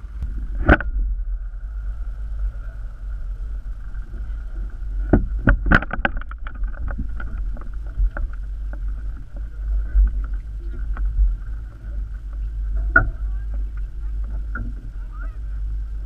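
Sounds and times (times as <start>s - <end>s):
drone propeller hum: 0.0s - 16.0s
low wind rumble: 0.0s - 16.0s.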